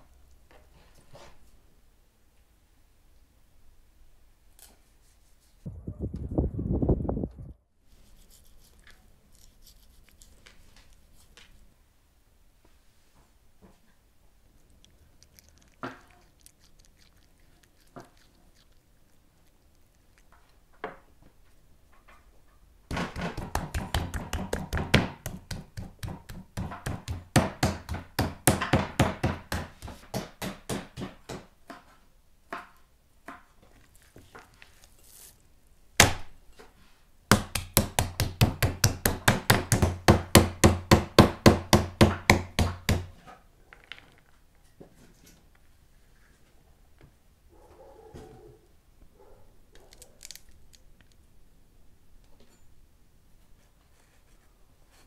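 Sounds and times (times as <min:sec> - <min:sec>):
knife chopping on wooden board: 0:22.9 - 0:31.9, 0:37.3 - 0:43.1.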